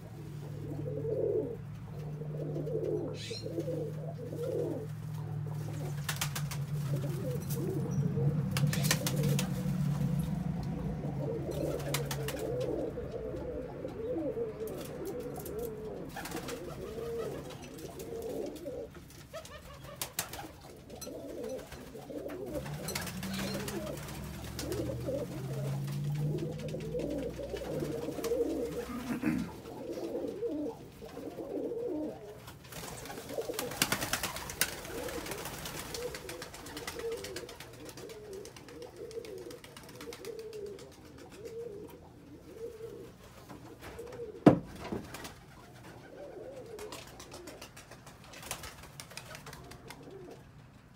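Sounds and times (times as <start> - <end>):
pigeons cooing: 0.0 - 50.9
wing flaps: 4.4 - 10.3, 11.5 - 12.8, 15.0 - 31.3, 32.4 - 41.8.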